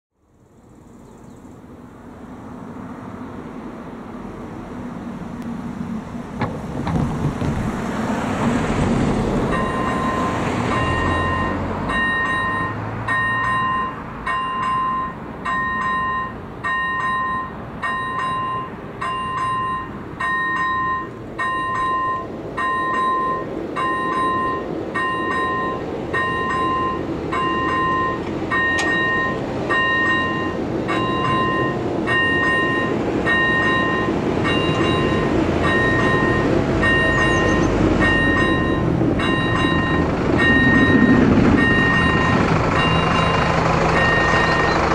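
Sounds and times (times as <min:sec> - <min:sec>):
level crossing warning bell: 0:09.5 - 0:44.9
low rumble: 0:36.2 - 0:44.9.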